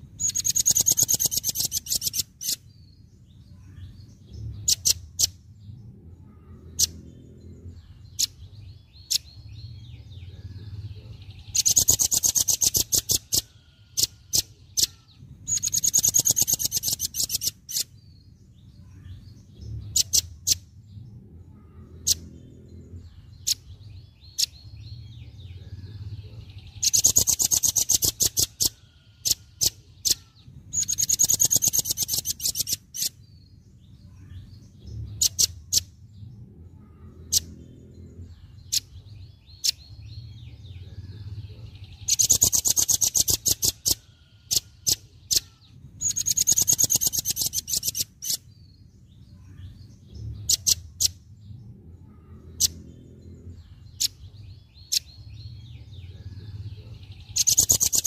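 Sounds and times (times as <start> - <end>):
nuthatch chip trills: 0.1 - 2.7, 11.5 - 17.9, 26.8 - 33.2, 42.0 - 48.5, 57.2 - 58.0.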